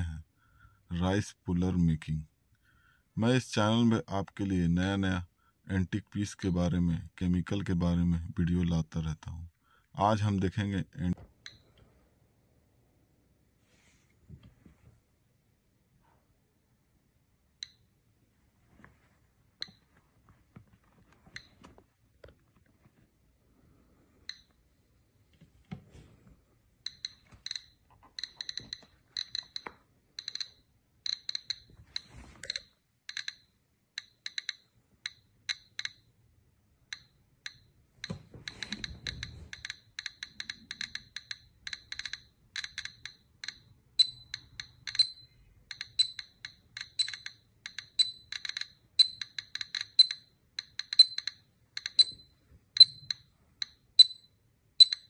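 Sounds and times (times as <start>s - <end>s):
high-pitched ticks: 26.8s - 36.1s, 38.5s - 55.0s.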